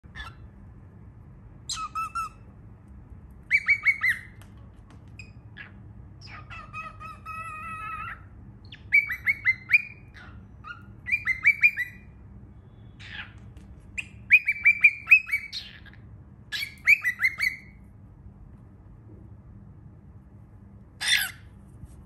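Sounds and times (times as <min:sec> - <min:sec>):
cockatiel chirping: 0:00.1 - 0:00.5, 0:01.7 - 0:02.5, 0:03.4 - 0:04.5, 0:05.1 - 0:12.2, 0:13.0 - 0:17.8, 0:21.0 - 0:21.5.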